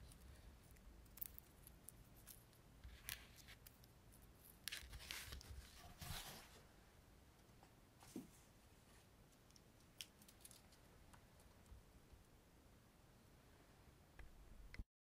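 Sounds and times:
small objects clicking and rustling: 0:00.0 - 0:05.8, 0:09.5 - 0:11.8.

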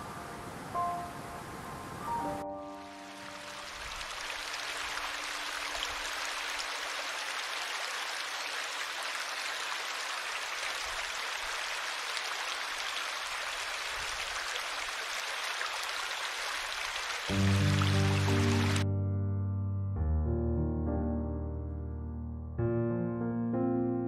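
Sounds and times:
stream rushing over rocks: 0:02.8 - 0:18.8.

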